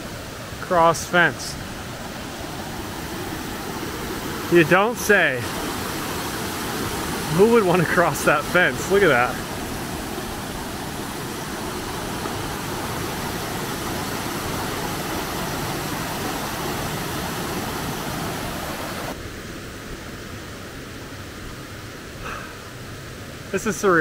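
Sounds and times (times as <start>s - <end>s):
waterfall roaring: 0.0s - 19.2s.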